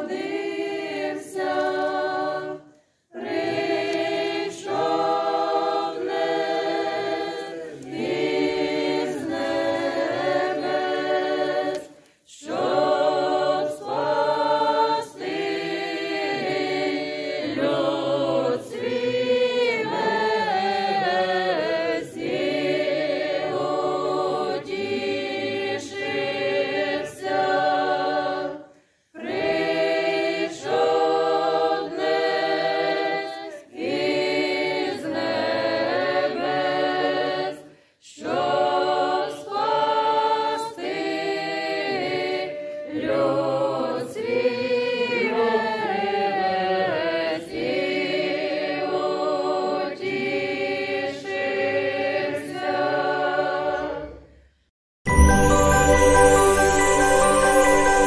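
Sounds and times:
choir singing a cappella: 0.0 - 54.5, 55.1 - 58.0.

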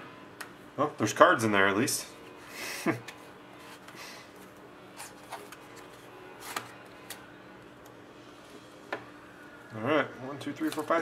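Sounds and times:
low steady hum: 0.0 - 11.0
cards rustling and ticking: 10.6 - 11.0.

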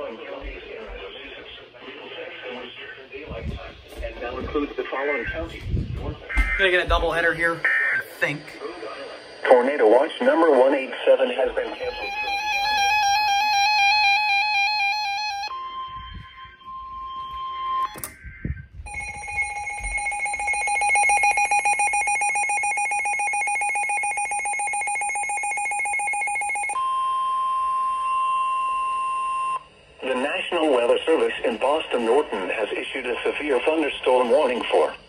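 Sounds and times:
steady warning tone: 6.2 - 30.4
rapidly pulsing alarm tone: 11.7 - 26.8
warbling electronic alarm: 11.7 - 29.6.

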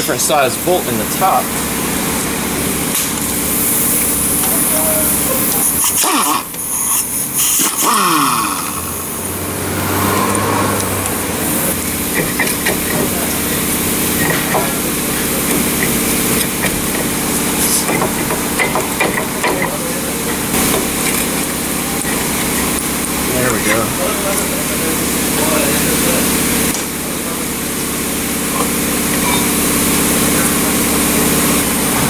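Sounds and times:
steady engine-like hum: 0.0 - 32.0
pneumatic wrench bursts: 2.9 - 9.3, 11.4 - 23.8.

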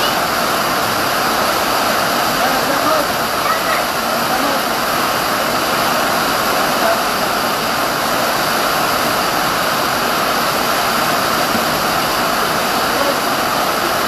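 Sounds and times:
heavy rain pouring: 0.0 - 14.0.

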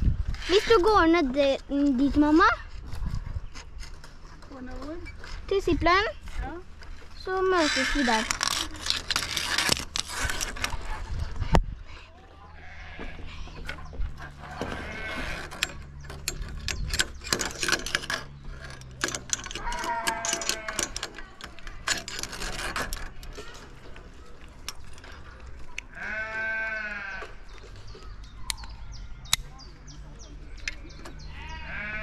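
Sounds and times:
metal clips clicking on cables: 15.4 - 25.9.

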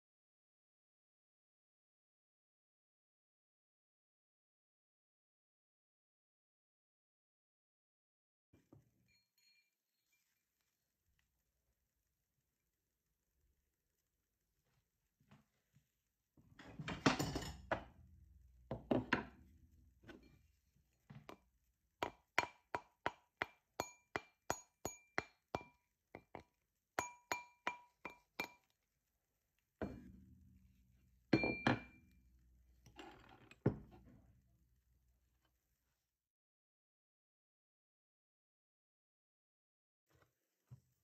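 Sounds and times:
mallet tapping metal ring: 23.8 - 25.8, 27.0 - 28.7, 31.3 - 32.1.

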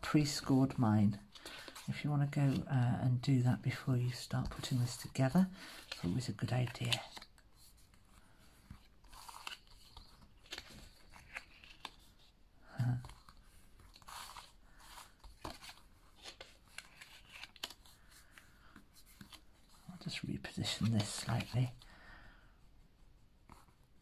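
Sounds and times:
card stock crinkling: 4.4 - 7.4, 8.6 - 12.2, 12.8 - 21.9.

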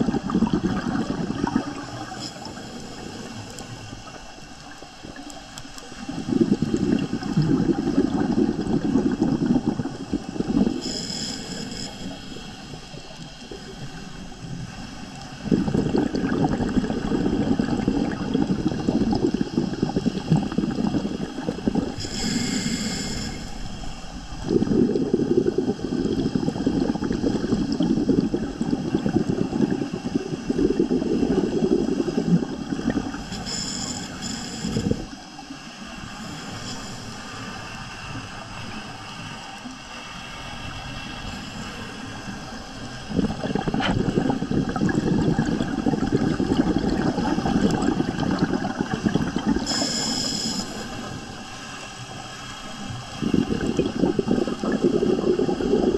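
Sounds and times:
bubbling exhale underwater: 0.0 - 37.5, 41.3 - 55.9
regulator hissing inhales: 10.6 - 14.3, 21.9 - 24.1, 33.2 - 35.2, 36.1 - 37.6, 49.6 - 51.2.

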